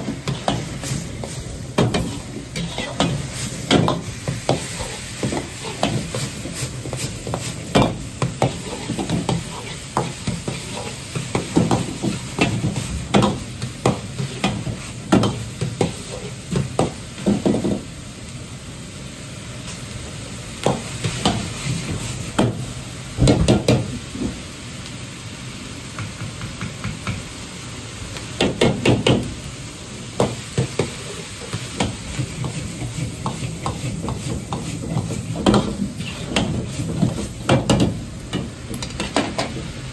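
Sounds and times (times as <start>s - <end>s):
meat sizzling in a wok: 0.0s - 39.9s.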